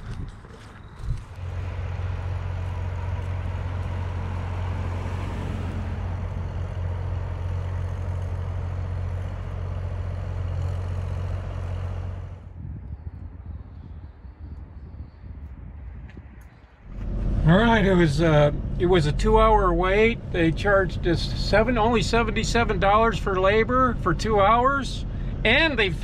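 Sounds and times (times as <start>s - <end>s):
vehicle engine droning: 0.0s - 12.8s, 16.5s - 26.0s
road noise: 0.0s - 13.5s, 14.4s - 26.0s.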